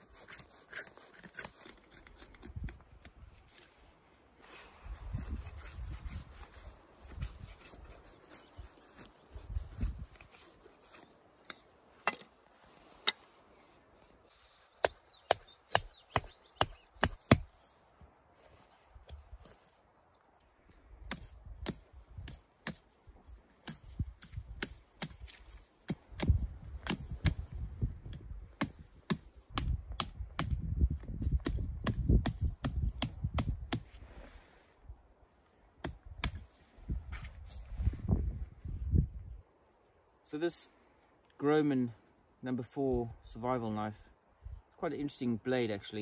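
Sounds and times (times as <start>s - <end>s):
knife chopping wood: 14.8s - 17.5s, 35.8s - 36.5s.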